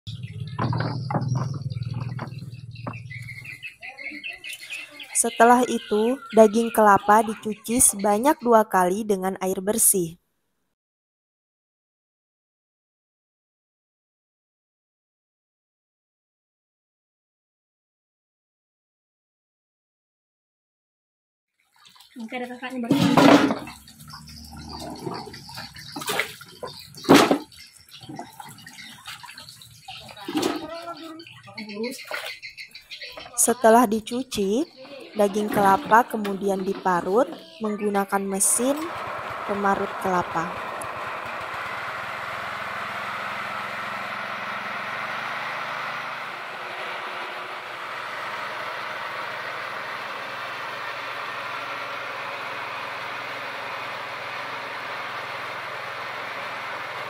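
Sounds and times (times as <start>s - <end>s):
small engine humming: 0.1s - 8.4s, 22.9s - 57.0s
water sloshing and splashing: 21.6s - 33.3s
wet knocks in metal bucket: 22.9s - 23.8s.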